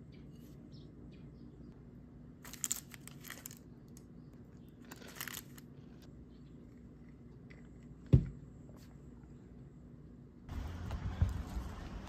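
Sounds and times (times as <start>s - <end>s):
bagel crunching: 2.4s - 6.1s
paper crinkling: 4.8s - 6.1s.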